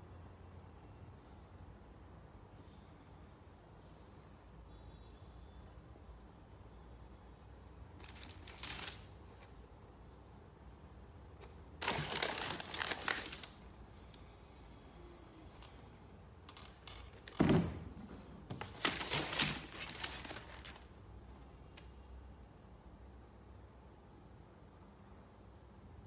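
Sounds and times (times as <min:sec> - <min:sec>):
tissue paper rustling: 0:08.0 - 0:09.1, 0:11.8 - 0:13.7, 0:18.6 - 0:20.9.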